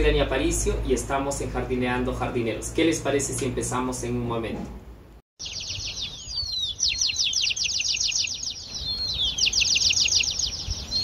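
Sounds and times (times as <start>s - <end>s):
birds chirping: 5.4s - 11.0s
falling whistled bird calls: 5.4s - 11.0s.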